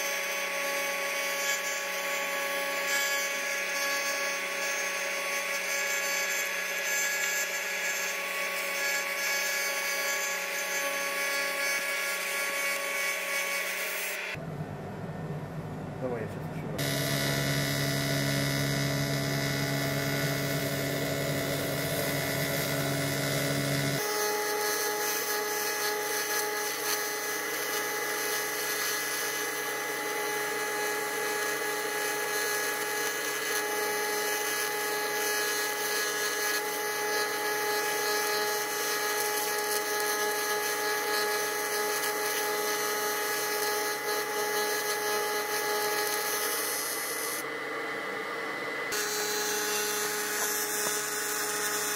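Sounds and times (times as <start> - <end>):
welding arc buzzing: 16.8 - 47.5, 48.9 - 51.9.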